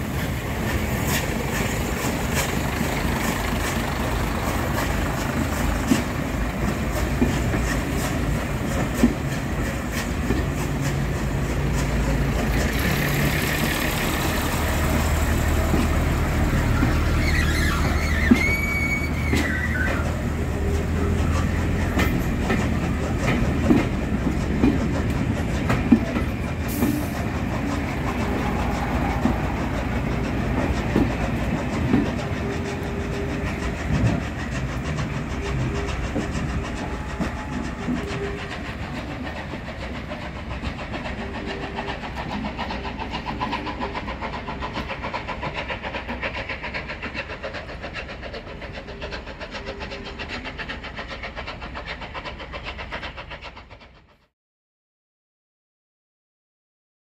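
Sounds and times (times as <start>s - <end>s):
diesel engines running: 0.0s - 45.1s
train wheels clicking over rail joints: 0.0s - 54.3s.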